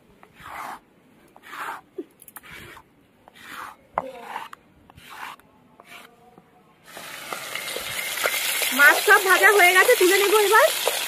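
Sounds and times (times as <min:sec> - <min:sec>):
paste scraped on grinding stone: 0:00.2 - 0:06.1.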